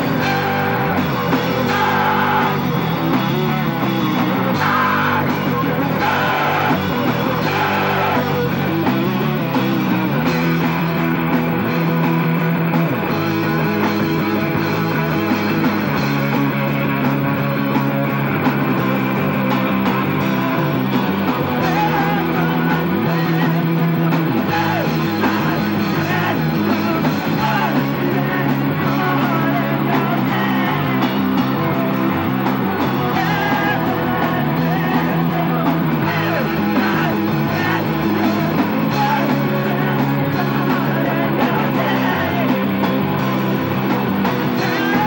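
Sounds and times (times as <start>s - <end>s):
drum kit: 0.0s - 45.0s
electric guitars: 0.0s - 45.0s
man singing into a microphone: 21.5s - 32.0s, 32.7s - 43.1s, 44.4s - 45.0s.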